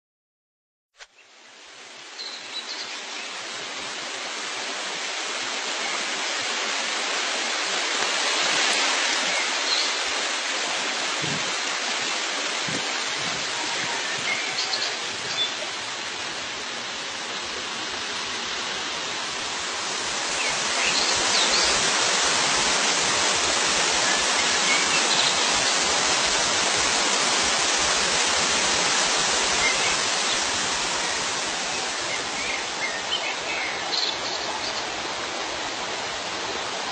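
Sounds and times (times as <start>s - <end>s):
rushing water: 1.1s - 36.9s
faint bird chirps: 13.2s - 15.8s.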